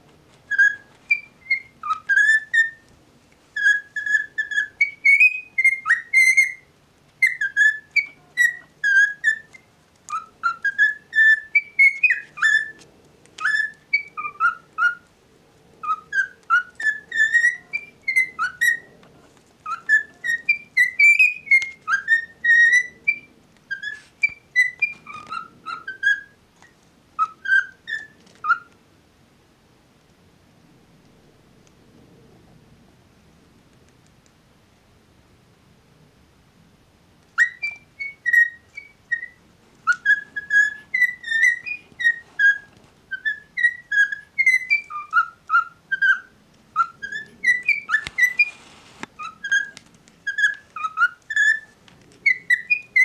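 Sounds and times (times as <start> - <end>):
cockatiel whistling: 0.5 - 2.9, 3.6 - 15.1, 15.8 - 18.9, 19.6 - 28.8, 37.4 - 53.0.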